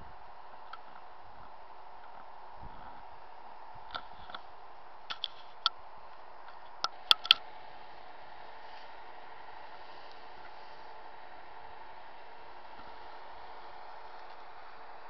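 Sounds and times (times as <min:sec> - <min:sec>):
steady hum: 0:00.0 - 0:15.0
sharp clicks and ticks: 0:06.5 - 0:07.4.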